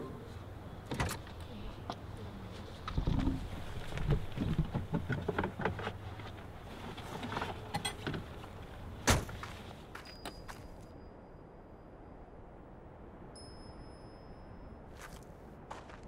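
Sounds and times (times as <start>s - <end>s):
rummaging knocks and rustles: 2.8s - 9.8s.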